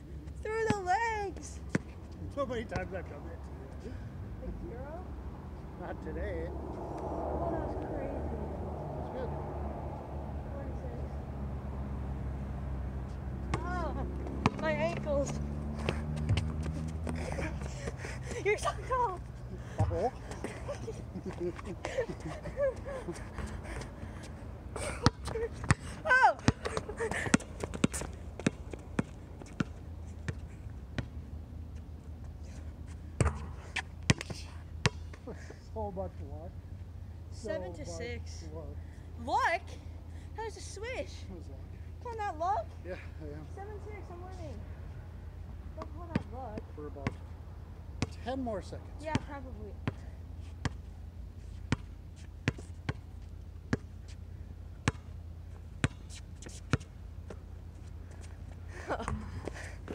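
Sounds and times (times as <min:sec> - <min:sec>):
basketball bouncing on hard court: 0:14.4 - 0:17.2, 0:19.8 - 0:20.4, 0:25.0 - 0:30.4, 0:33.2 - 0:35.1, 0:54.8 - 0:55.1, 0:55.8 - 0:56.0.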